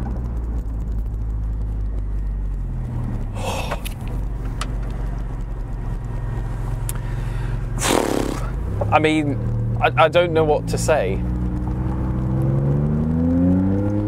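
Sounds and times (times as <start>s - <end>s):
car engine droning at low revs: 0.0s - 14.0s.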